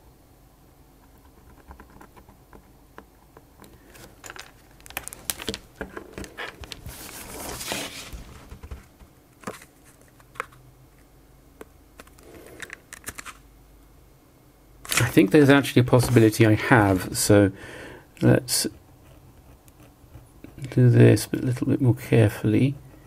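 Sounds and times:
plastic sheet crinkling and crackling: 0:03.7 - 0:10.6.

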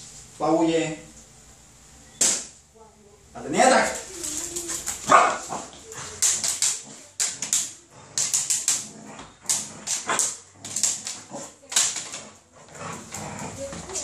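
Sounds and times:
claws clicking on tiled floor: 0:04.0 - 0:14.0
puppy barking and growling: 0:04.8 - 0:14.0.

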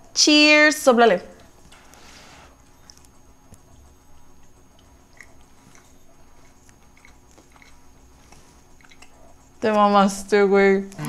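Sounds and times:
chewing cookies: 0:01.4 - 0:09.9.

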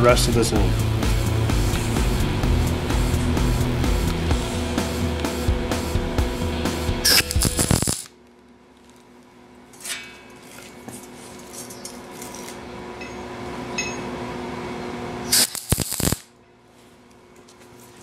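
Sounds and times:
low steady hum: 0:00.0 - 0:18.0
welder arc crackling: 0:00.7 - 0:08.2, 0:15.3 - 0:16.3.

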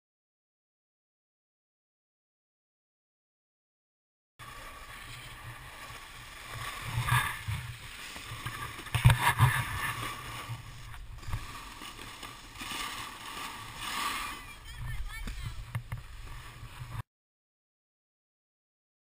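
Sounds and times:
skis sliding over snow: 0:04.4 - 0:17.0.

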